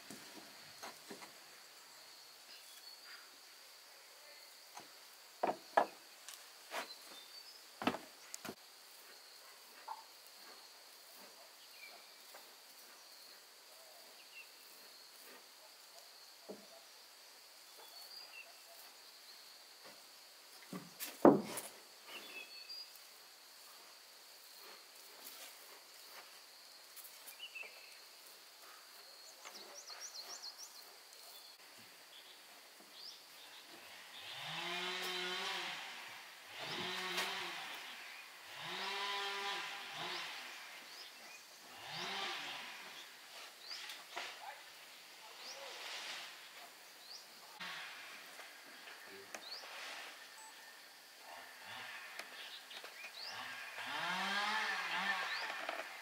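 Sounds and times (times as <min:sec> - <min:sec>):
high insect drone: 0:31.1 - 0:56.0.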